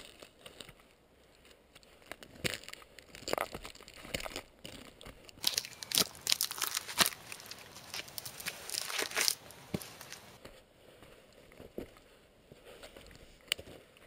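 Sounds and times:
clothing scraping tree bark: 4.9 - 14.0.

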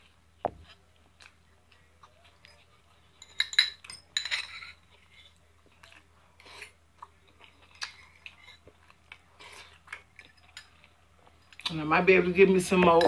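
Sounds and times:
soft chewing: 0.0 - 11.8
fork clinking on a dish: 2.4 - 4.8.

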